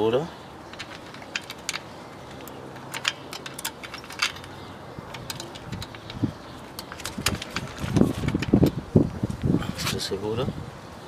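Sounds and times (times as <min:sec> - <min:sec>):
light metallic clicks and clinks: 0:00.7 - 0:08.6.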